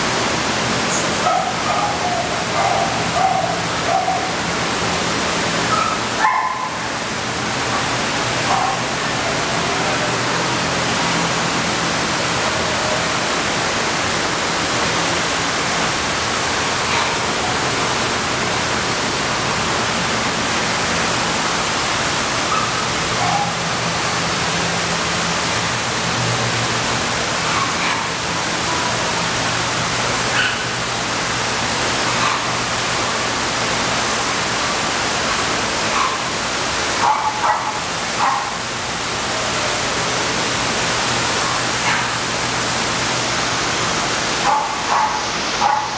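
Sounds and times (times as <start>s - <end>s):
loud steady rushing noise: 0.0s - 45.9s
dogs barking and yipping: 1.2s - 4.4s, 5.7s - 6.8s, 22.4s - 23.7s, 27.4s - 28.2s, 30.3s - 30.8s, 36.9s - 38.6s, 44.4s - 45.9s.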